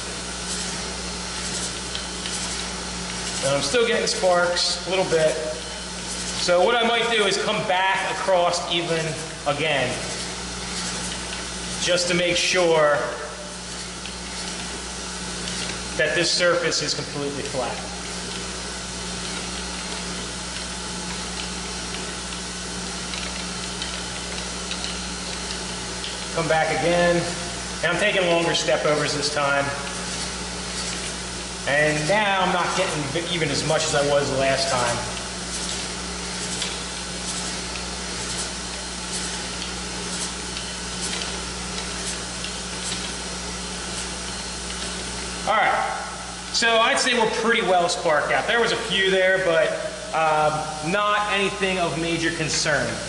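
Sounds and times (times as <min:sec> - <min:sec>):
surface grinder humming and hissing: 0:00.0 - 0:53.0.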